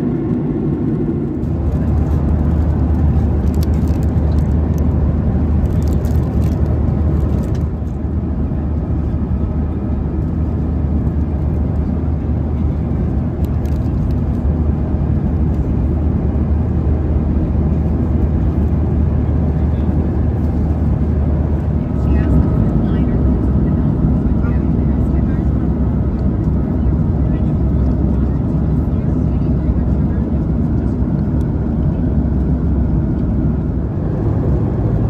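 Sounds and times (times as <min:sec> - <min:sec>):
airplane cabin rumble: 0:00.0 - 0:35.0
plastic wrapper crinkling: 0:03.4 - 0:04.6, 0:05.6 - 0:07.6.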